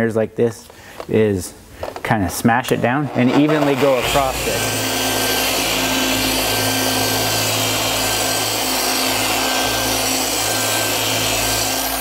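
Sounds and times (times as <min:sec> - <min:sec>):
orbital polisher running on car paint: 0:03.4 - 0:12.0.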